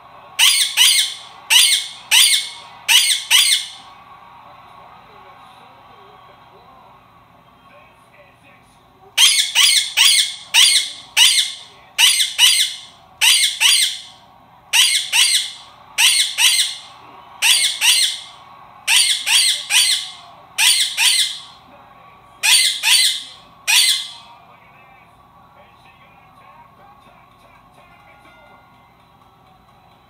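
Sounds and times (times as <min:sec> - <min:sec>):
parakeet screeching: 0:00.4 - 0:03.9, 0:09.2 - 0:21.6, 0:22.4 - 0:24.3.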